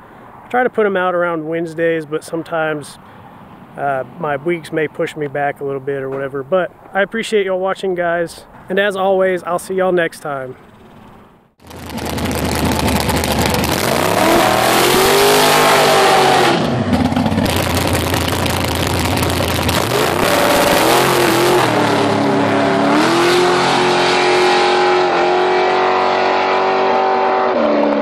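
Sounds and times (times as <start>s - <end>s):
dragster engine revving: 11.6s - 28.0s.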